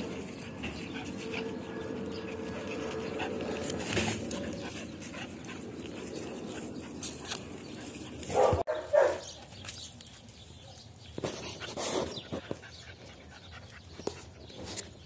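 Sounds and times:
dog barking: 0:08.3 - 0:09.3.

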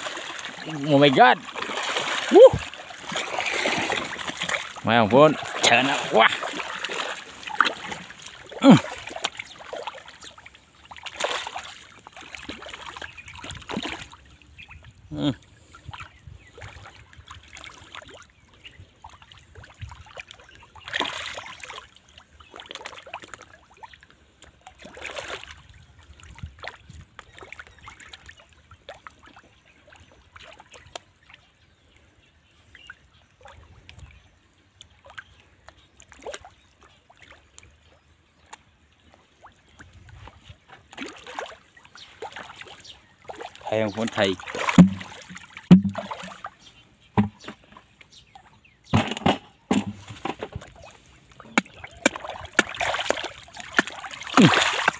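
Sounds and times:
fish splashing at surface: 0:00.0 - 0:10.3, 0:10.9 - 0:14.2, 0:42.2 - 0:46.6, 0:49.0 - 0:54.9
scraps splashing into pond: 0:00.0 - 0:14.3, 0:19.0 - 0:31.5, 0:34.9 - 0:37.6, 0:39.4 - 0:54.9.

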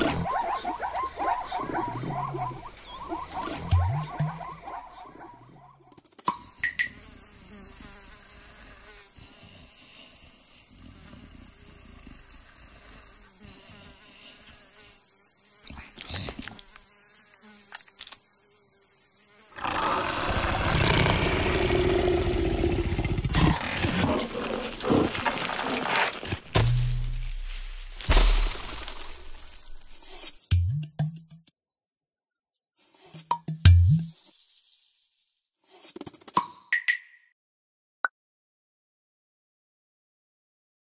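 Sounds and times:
thin insect whine: 0:00.0 - 0:05.8, 0:06.4 - 0:30.4
big cat growl: 0:19.6 - 0:25.8
sharp thumps: 0:26.3 - 0:31.4.

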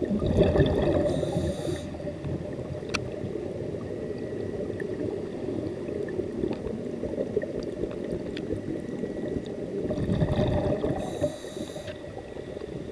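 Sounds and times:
underwater breath bubbling: 0:00.0 - 0:02.2, 0:09.8 - 0:12.2.

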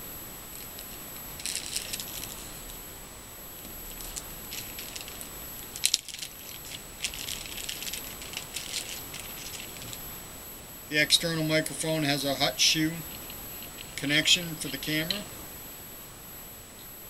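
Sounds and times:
plastic packaging crackling: 0:00.5 - 0:02.8, 0:03.6 - 0:10.1.

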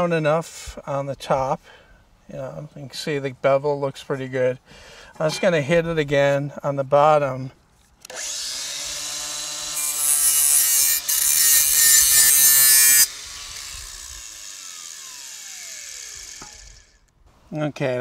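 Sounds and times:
angle grinder: 0:08.1 - 0:17.1
grinder grinding steel blade: 0:08.1 - 0:17.1.

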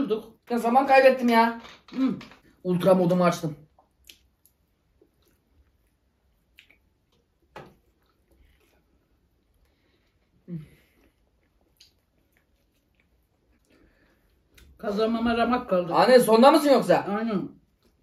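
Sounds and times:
people chewing wet food: 0:03.6 - 0:14.8, 0:17.6 - 0:18.0.

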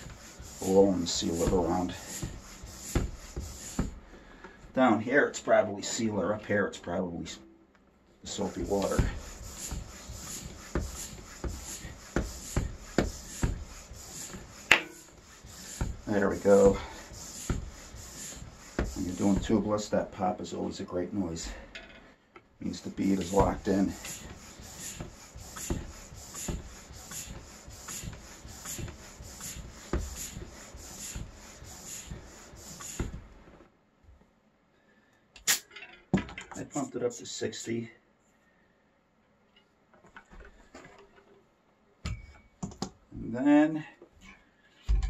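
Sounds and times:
floor pump strokes: 0:00.0 - 0:04.8, 0:08.3 - 0:20.2, 0:22.7 - 0:33.6.

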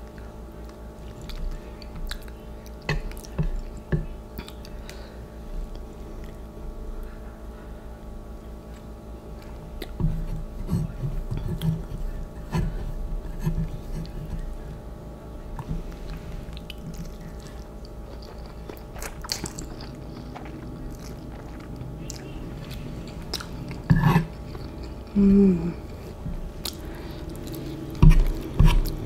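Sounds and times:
person chewing noodles: 0:00.1 - 0:05.0, 0:15.6 - 0:29.0.

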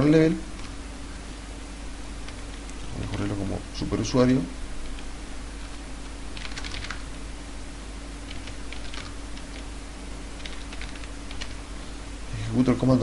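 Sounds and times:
low hum and hiss: 0:00.0 - 0:13.0
typing on computer keyboard: 0:00.5 - 0:00.8, 0:06.3 - 0:07.0, 0:08.2 - 0:09.7, 0:10.4 - 0:11.6.

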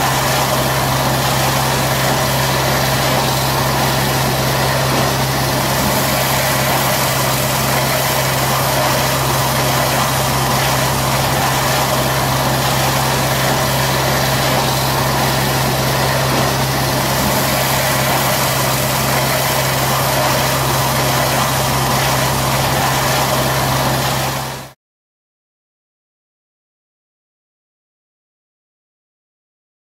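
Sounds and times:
water jet hissing: 0:00.0 - 0:24.7
pressure washer engine hum: 0:00.0 - 0:24.8.

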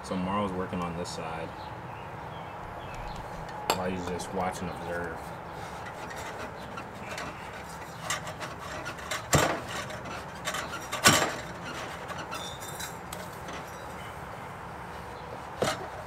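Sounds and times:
metal exhaust parts clinking: 0:02.6 - 0:14.2
sharp metal clanks: 0:05.9 - 0:13.9.

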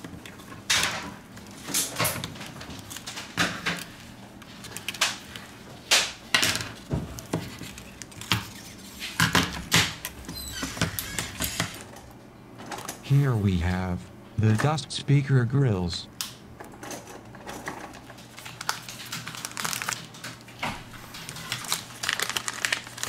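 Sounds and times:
clicks and crackles: 0:00.0 - 0:10.2, 0:16.2 - 0:23.0.

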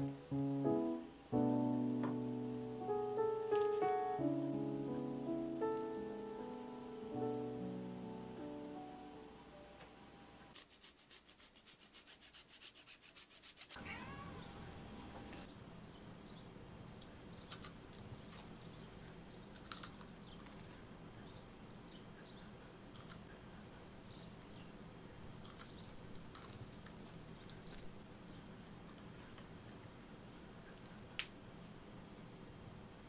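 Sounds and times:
cheese grating: 0:10.5 - 0:13.8.

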